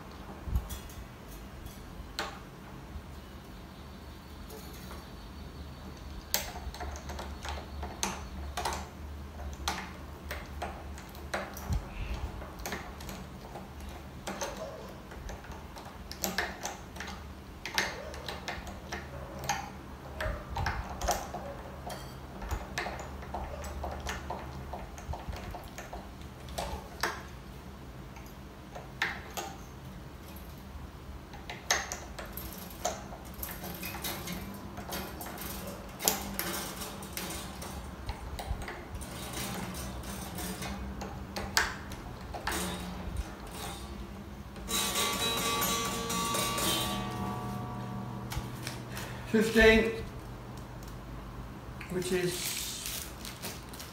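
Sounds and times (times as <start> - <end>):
metallic ticks of guitar strings: 44.6 - 49.0.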